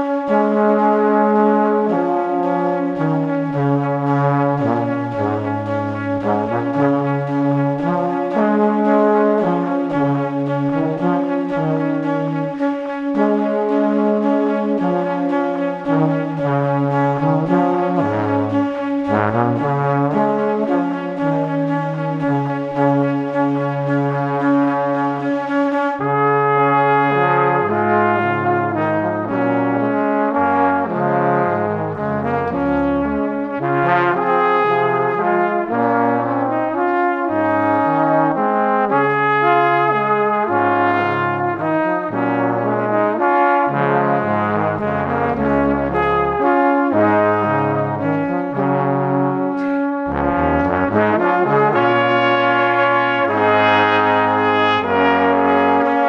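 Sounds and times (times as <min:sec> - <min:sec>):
bass line: 0:00.0 - 0:56.0
slow held chords: 0:48.0 - 0:52.0.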